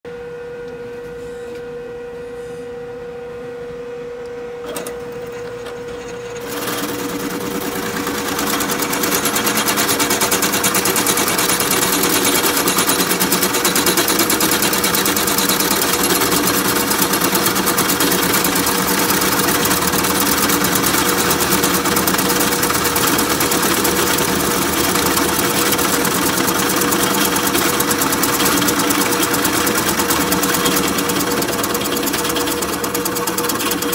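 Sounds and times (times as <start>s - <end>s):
drill press motor humming: 4.2s - 33.9s
drill bit boring into wood: 5.3s - 33.9s.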